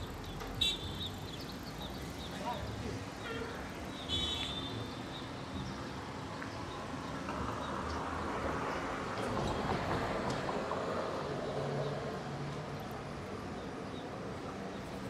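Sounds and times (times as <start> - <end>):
street traffic din: 0.0 - 15.0.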